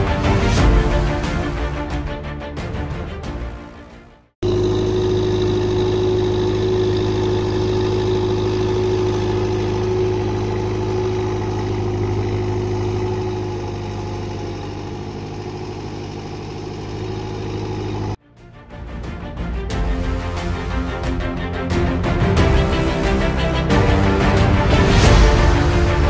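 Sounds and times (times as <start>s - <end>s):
wheel loader diesel engine: 4.4s - 18.2s, 19.7s - 26.0s.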